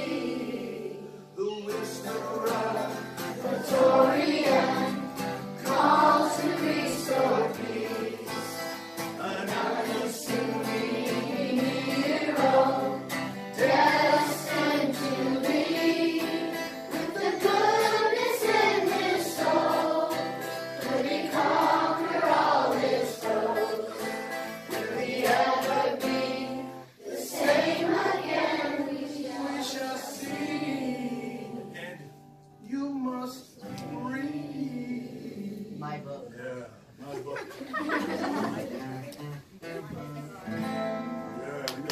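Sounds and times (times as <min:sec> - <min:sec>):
children singing in unison: 0:00.0 - 0:01.2, 0:02.4 - 0:31.7
strummed acoustic guitar: 0:00.0 - 0:35.2, 0:37.9 - 0:41.9
man singing: 0:01.4 - 0:03.1, 0:09.2 - 0:10.8.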